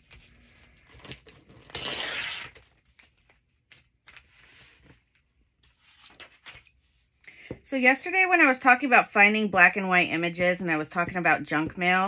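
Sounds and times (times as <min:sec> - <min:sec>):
paper rustling: 0:00.0 - 0:07.1
paper ripping: 0:00.1 - 0:03.2.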